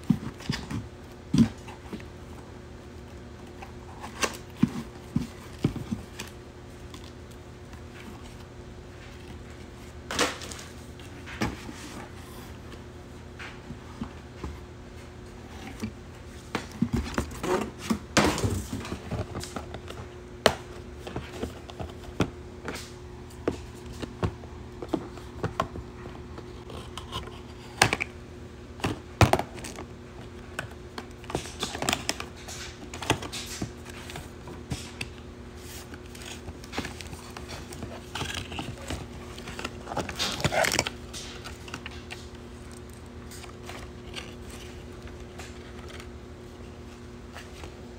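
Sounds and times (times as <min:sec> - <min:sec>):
faint steady hum: 0:00.0 - 0:47.9
packaging rustling: 0:31.1 - 0:46.2.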